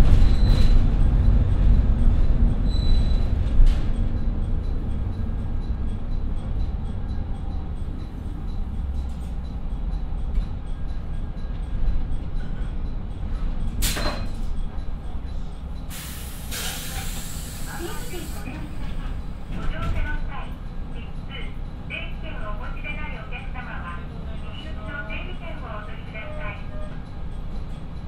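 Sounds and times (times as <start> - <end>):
train engines rumbling: 0.0 - 28.0
thin brake squeals: 0.2 - 0.8, 2.6 - 3.4, 13.8 - 14.4.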